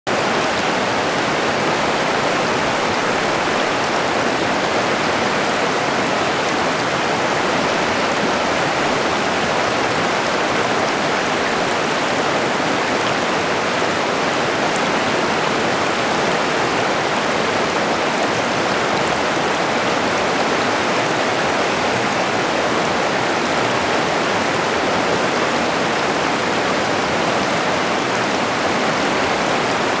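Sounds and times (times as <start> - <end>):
water rushing over rocks: 0.1 - 30.0.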